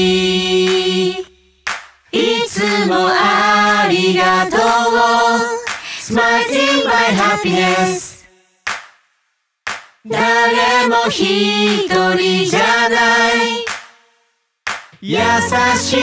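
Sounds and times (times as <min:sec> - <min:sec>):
group singing in harmony: 0:00.0 - 0:01.4, 0:02.1 - 0:08.4, 0:10.1 - 0:13.8, 0:15.0 - 0:16.0
sharp claps: 0:01.6 - 0:02.1, 0:05.7 - 0:05.9, 0:08.6 - 0:09.1, 0:09.7 - 0:10.1, 0:13.6 - 0:14.1, 0:14.7 - 0:15.1.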